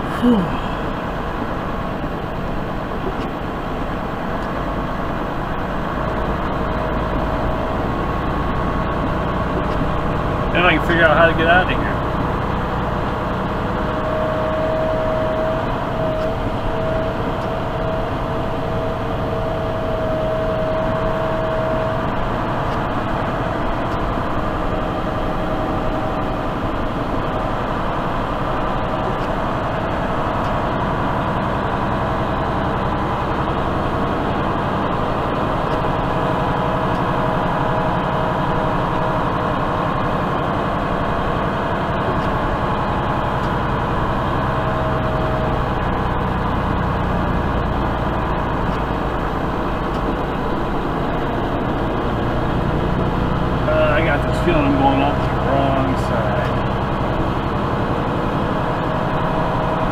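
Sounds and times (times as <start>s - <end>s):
faint whining tones: 0.0s - 59.9s
truck diesel engine drone: 0.0s - 59.9s.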